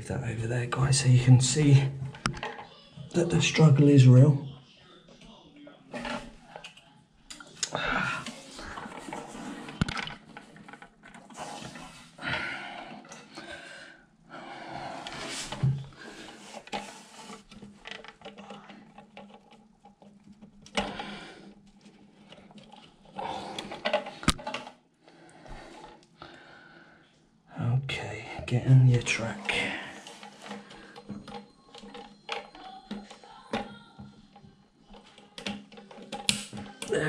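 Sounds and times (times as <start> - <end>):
rustling handling noise: 8.1 - 12.2, 14.9 - 24.8, 28.4 - 37.0.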